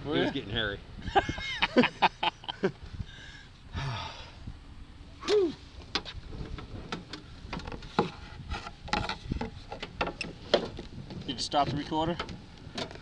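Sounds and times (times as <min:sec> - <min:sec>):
clicks and knocks of person moving: 0:05.2 - 0:13.0.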